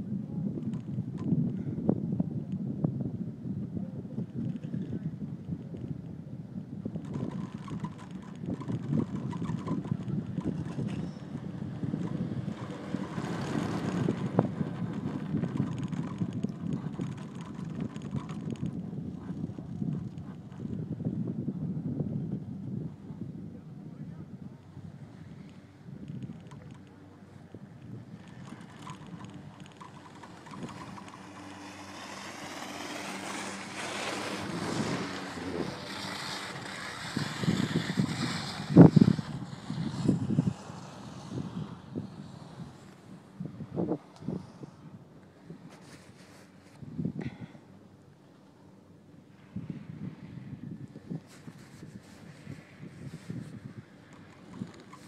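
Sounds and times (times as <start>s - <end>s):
wind buffeting microphone: 0.0s - 48.2s, 48.8s - 55.0s
fast faint clicking: 6.9s - 20.9s, 25.4s - 27.0s, 27.7s - 41.5s, 51.2s - 55.0s.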